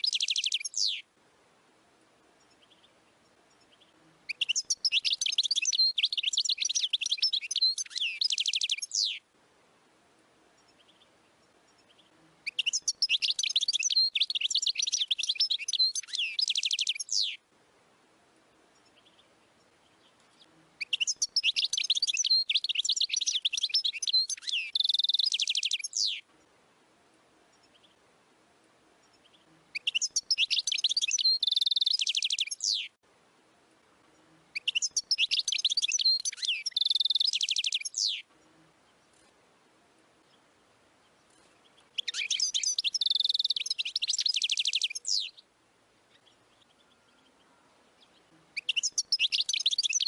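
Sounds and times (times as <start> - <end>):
goldfinch singing: 0.0 - 1.0, 3.5 - 9.2, 10.6 - 17.4, 18.8 - 26.3, 29.0 - 33.0, 34.1 - 38.3, 41.2 - 45.5, 46.1 - 50.0.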